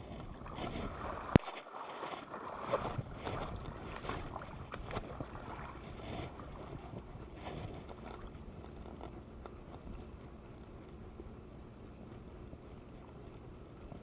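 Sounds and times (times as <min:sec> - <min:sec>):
seawater splashing over rocks: 0:00.0 - 0:11.0.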